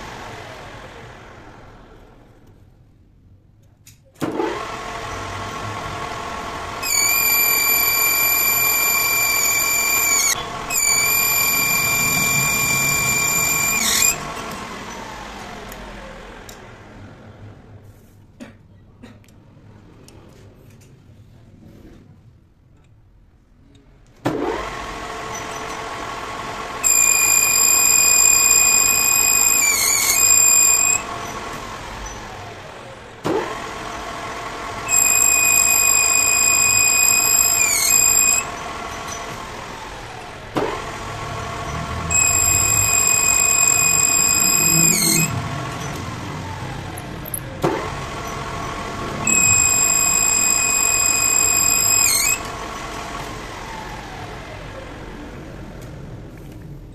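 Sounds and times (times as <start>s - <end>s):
lathe motor whining: 4.3s - 16.6s, 24.4s - 56.2s
cutting tool squealing on metal: 6.8s - 14.2s, 26.8s - 31.0s, 34.9s - 38.5s, 41.7s - 45.9s, 49.2s - 52.5s.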